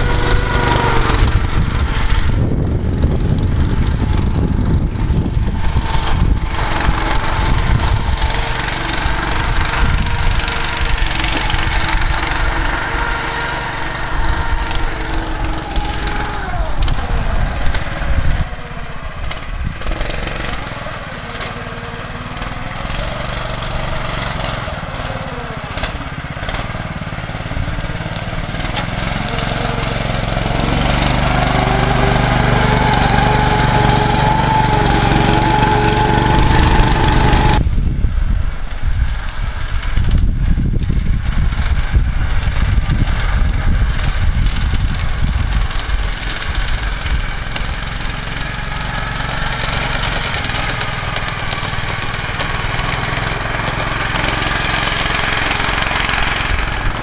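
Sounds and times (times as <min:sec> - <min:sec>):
small snowmobile engine running: 0:00.0 - 0:57.0.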